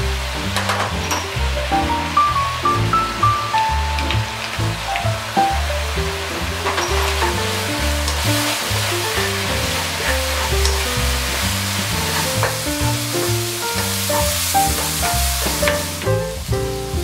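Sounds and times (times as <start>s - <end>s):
background music: 0.0s - 17.0s
mushrooms sizzling in a frying pan: 3.4s - 17.0s.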